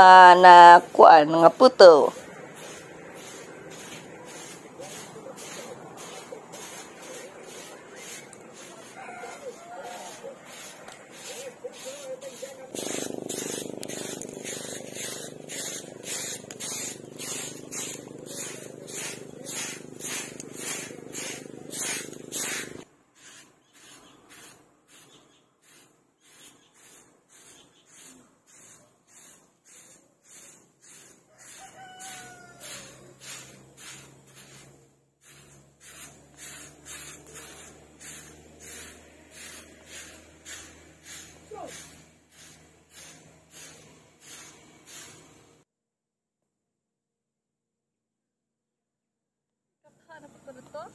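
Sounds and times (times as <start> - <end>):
stick broom sweeping grass: 0.0 - 45.6
rooster crowing: 8.0 - 10.4, 31.2 - 33.4
steady hum: 12.7 - 22.8.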